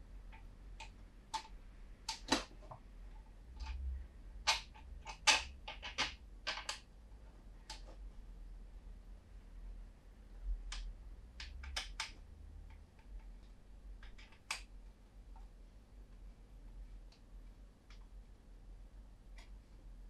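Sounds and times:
plastic parts clicking together: 0.3s - 2.8s, 3.5s - 3.8s, 4.4s - 6.8s, 10.7s - 14.7s.

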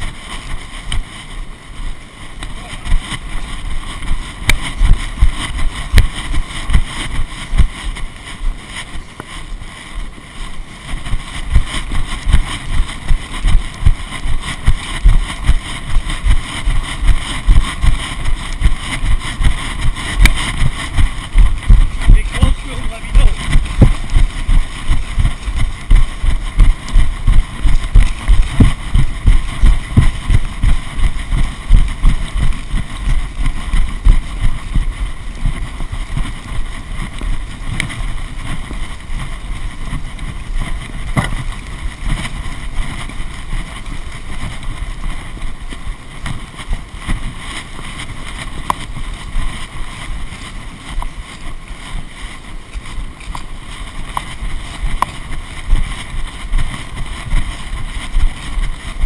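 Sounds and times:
wind buffeting microphone: 0.0s - 59.0s
low rhythmic thumps: 11.1s - 36.4s.

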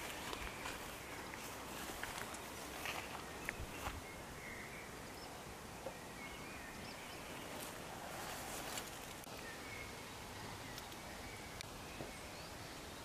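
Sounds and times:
soft rustling clicks: 0.0s - 4.0s
air and leaves hissing: 0.0s - 4.5s, 6.8s - 13.0s.

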